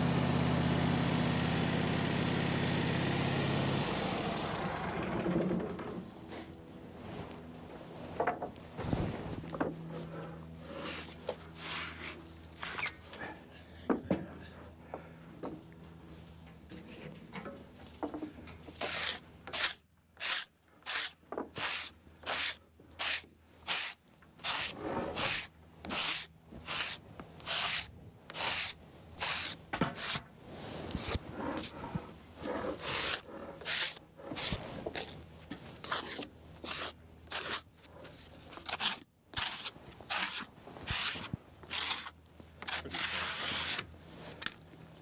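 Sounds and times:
steel blade scraping bark: 18.8 - 30.2, 32.5 - 35.2.

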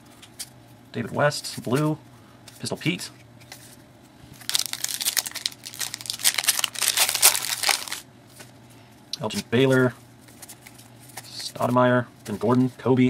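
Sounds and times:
wrapper crinkling and tearing: 4.4 - 8.0.

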